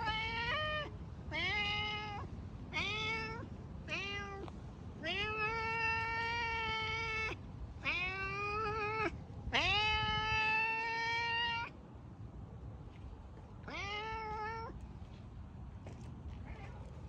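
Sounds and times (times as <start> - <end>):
cat meowing: 0.0 - 11.7, 13.6 - 14.8, 16.4 - 17.0.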